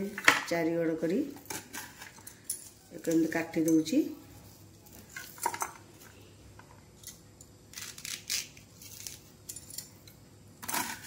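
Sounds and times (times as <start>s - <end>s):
knife cutting onion: 7.7s - 9.6s.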